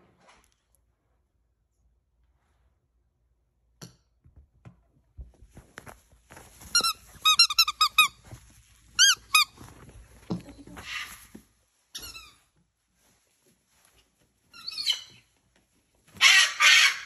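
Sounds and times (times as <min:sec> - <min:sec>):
high squeaks: 0:06.7 - 0:08.2.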